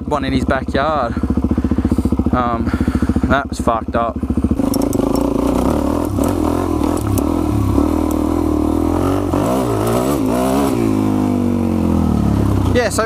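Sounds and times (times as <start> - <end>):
motorcycle engine running: 0.0 - 13.0
clicks and light clatter: 4.6 - 5.3.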